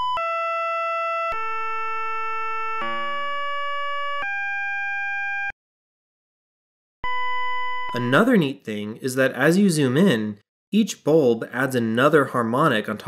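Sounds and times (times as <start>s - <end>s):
synthesized pure tones: 1.3s - 4.4s.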